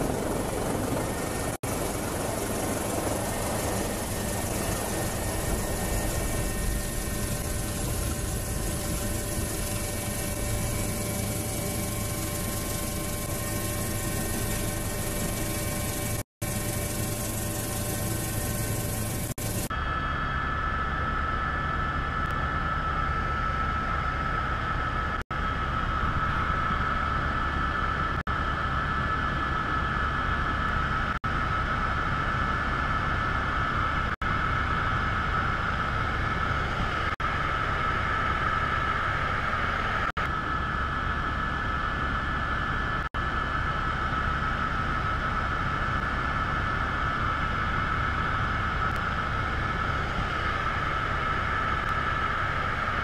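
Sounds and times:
drone propellers whining: 0.0s - 24.3s.

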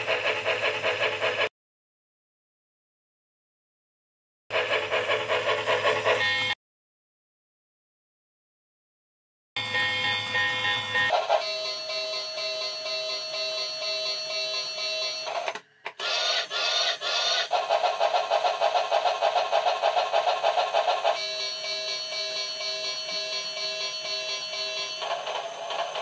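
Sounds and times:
toy train whistle: 6.1s - 6.6s, 9.6s - 15.4s, 16.0s - 17.5s, 21.0s - 26.0s
rapid steam chuffing: 16.0s - 21.2s.

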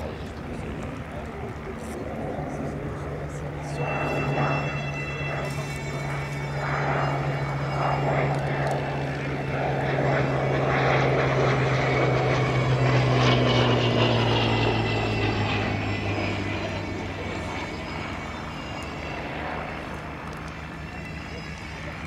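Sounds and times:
radial aircraft engines droning: 0.0s - 22.0s.

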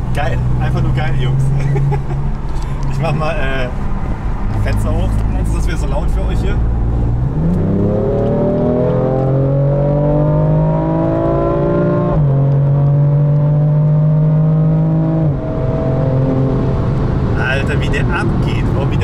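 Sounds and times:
car engine accelerating from inside: 4.4s - 19.0s.

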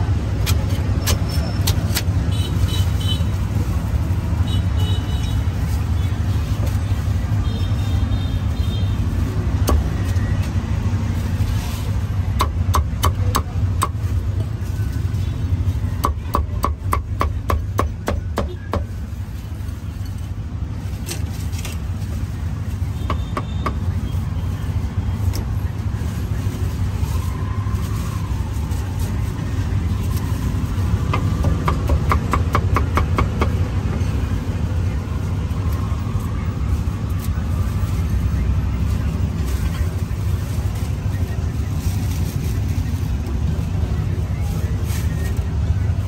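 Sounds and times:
street traffic rumble: 0.0s - 46.0s
cleaver chopping meat: 31.1s - 33.6s.

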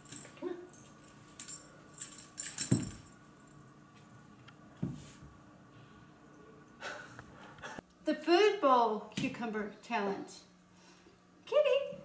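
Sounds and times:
metallic jingling and clicking: 0.0s - 3.2s.

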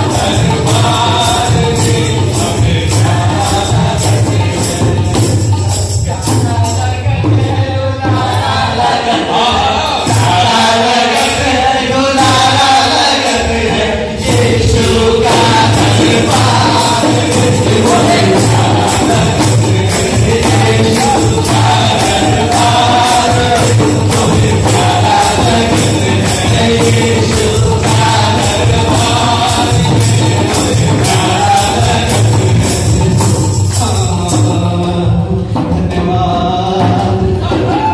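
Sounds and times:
barrel drum beat: 0.0s - 37.9s
group singing devotional song: 0.0s - 37.9s
male lead voice singing: 0.0s - 37.9s
hand clapping: 15.4s - 34.1s.

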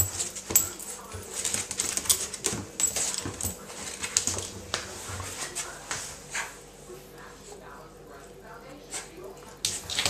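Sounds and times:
dog claws clicking on tiles: 0.0s - 4.9s, 9.4s - 10.0s.

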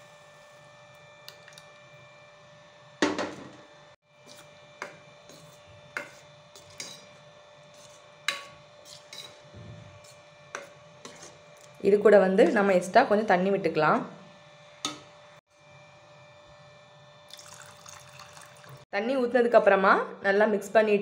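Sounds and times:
metal ladle scraping a pot: 4.2s - 11.8s.

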